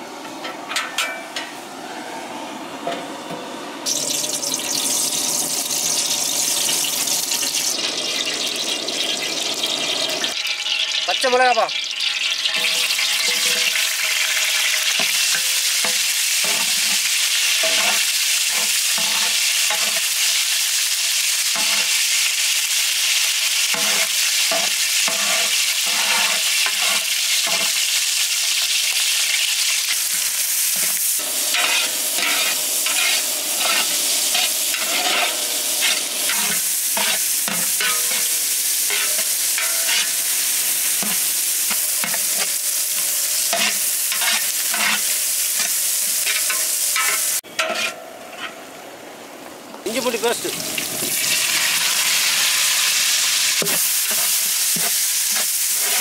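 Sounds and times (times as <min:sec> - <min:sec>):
vegetables sizzling in hot oil: 0:03.8 - 0:47.9, 0:49.8 - 0:56.0
metal ladle scraping a pot: 0:11.8 - 0:20.1, 0:23.7 - 0:27.7, 0:30.8 - 0:40.2, 0:43.5 - 0:48.6, 0:53.6 - 0:56.0.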